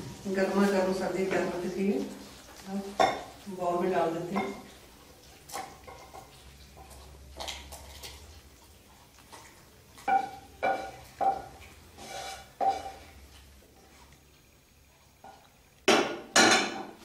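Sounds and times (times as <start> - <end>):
spatula clacking on pan and bowl: 2.9 - 3.5, 4.2 - 4.8, 5.4 - 8.1, 10.0 - 13.4, 15.2 - 17.0
spatula scraping a pan: 10.0 - 13.9.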